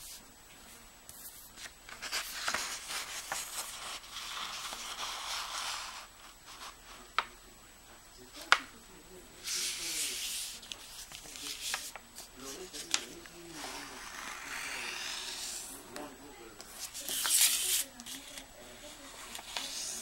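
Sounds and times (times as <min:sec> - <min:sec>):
paper being folded: 0:01.1 - 0:06.8, 0:09.4 - 0:15.8, 0:16.6 - 0:20.0
hands rubbing paper: 0:01.1 - 0:07.0, 0:09.4 - 0:16.0, 0:16.6 - 0:20.0.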